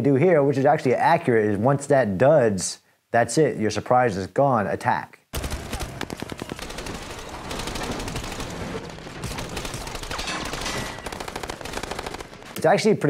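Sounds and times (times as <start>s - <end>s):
automatic gunfire: 5.4s - 12.6s.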